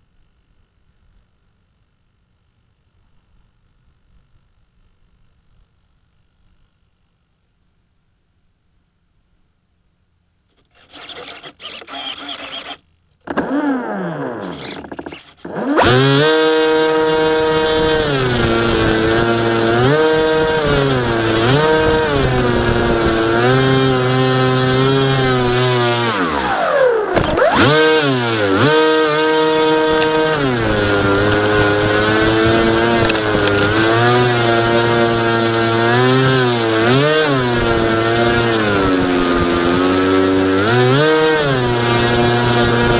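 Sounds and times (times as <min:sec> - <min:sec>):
electric motor propeller whine: 0:10.5 - 0:40.5.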